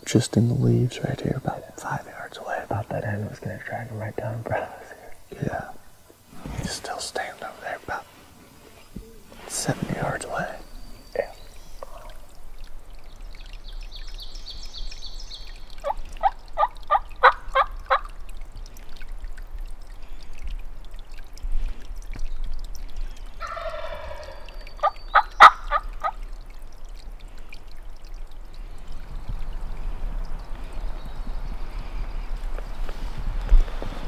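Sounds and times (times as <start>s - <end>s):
turkey gobbling: 15.8s - 18.1s, 23.4s - 26.2s
turkey call yelps: 23.4s - 26.2s.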